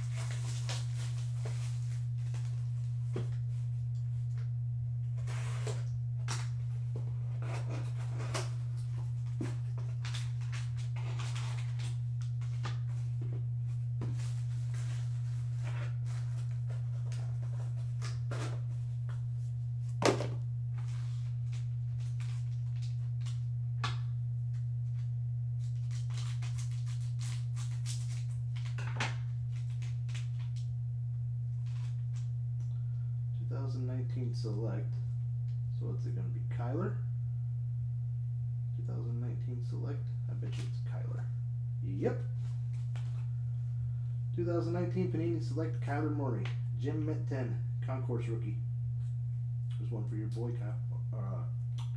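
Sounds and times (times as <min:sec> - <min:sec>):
steady low hum: 0:00.0 - 0:51.9
cardboard box and foil rustling: 0:09.2 - 0:12.8.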